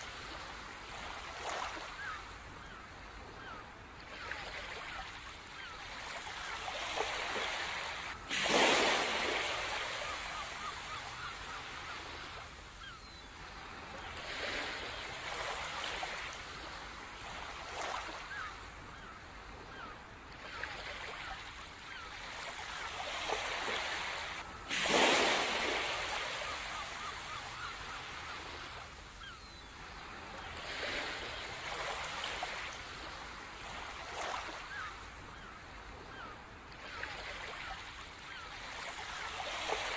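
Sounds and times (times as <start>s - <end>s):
waves rolling in: 0.0s - 39.9s
big waves breaking: 6.8s - 11.2s, 23.3s - 29.1s.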